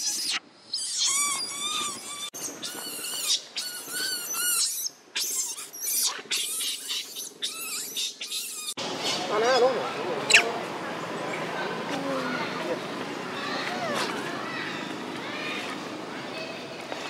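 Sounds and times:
baby monkey screaming: 0:00.0 - 0:08.8, 0:10.3 - 0:10.5.

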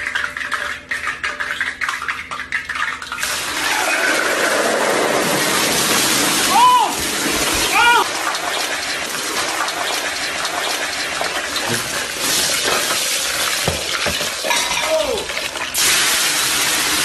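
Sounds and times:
burning oil sizzling and crackling: 0:03.2 - 0:17.0
short falling cry: 0:06.4 - 0:08.1.

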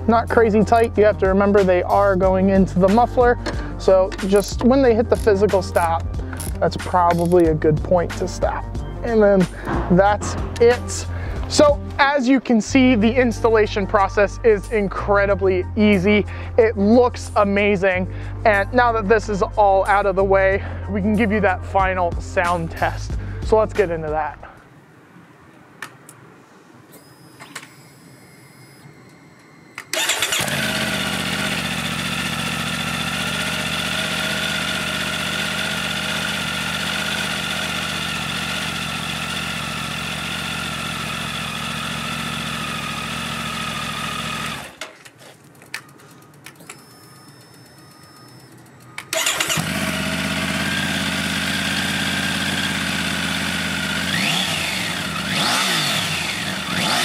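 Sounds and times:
motorcycle engine idling: 0:30.0 - 0:44.8, 0:49.1 - 0:57.0.

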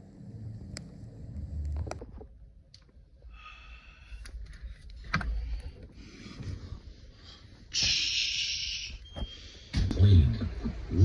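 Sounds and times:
rustling and shuffling: 0:04.3 - 0:07.8.

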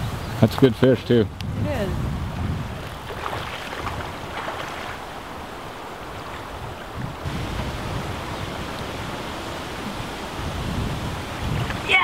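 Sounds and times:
shallow stream running: 0:00.8 - 0:12.0
splashes from wading: 0:02.9 - 0:06.5.

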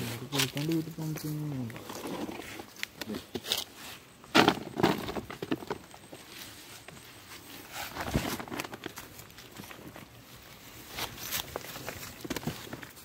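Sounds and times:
plastic bag and net crackling: 0:04.4 - 0:13.0.

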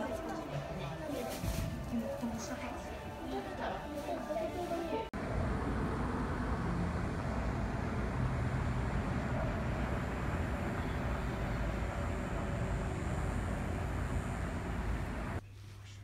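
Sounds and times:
distant road traffic rumble: 0:05.2 - 0:15.4.

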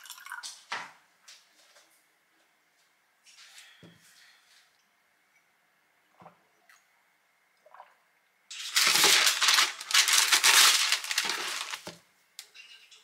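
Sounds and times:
baking paper crumpling: 0:08.5 - 0:12.0.

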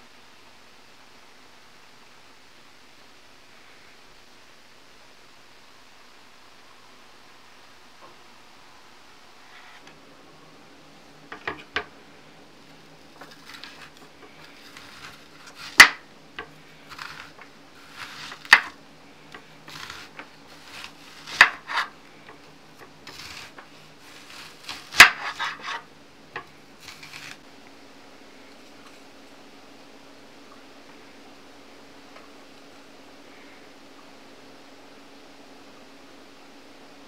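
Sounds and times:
knife slicing onion: 0:13.1 - 0:27.4.

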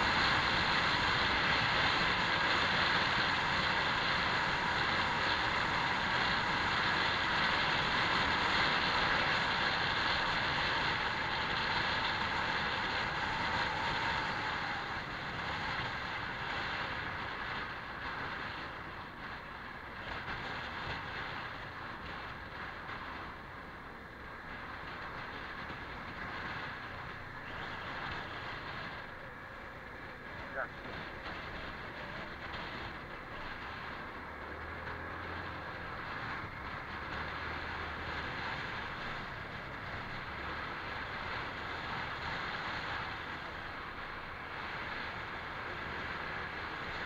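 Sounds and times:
scooter engine noise: 0:00.0 - 0:47.0.

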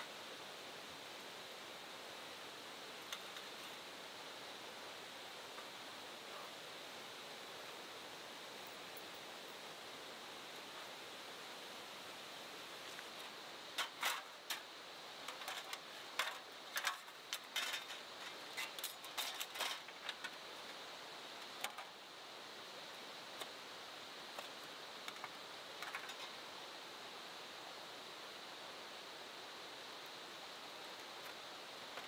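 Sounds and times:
flowing river water: 0:00.0 - 0:32.0
sharp light clicks and rattles: 0:13.8 - 0:20.4.

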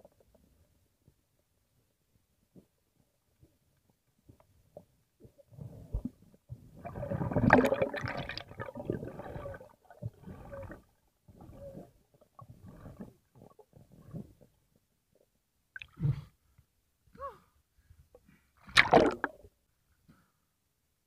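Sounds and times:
underwater gurgling and bubbling: 0:06.8 - 0:14.3.

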